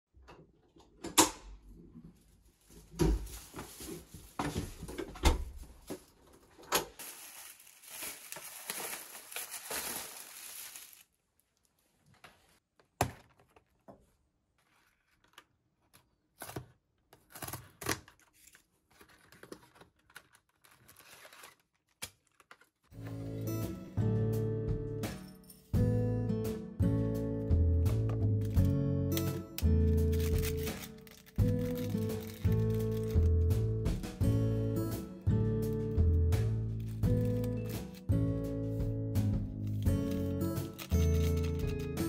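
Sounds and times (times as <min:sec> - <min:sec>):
plastic bag rustling: 0:02.1 - 0:12.6, 0:29.8 - 0:33.4, 0:39.6 - 0:42.0.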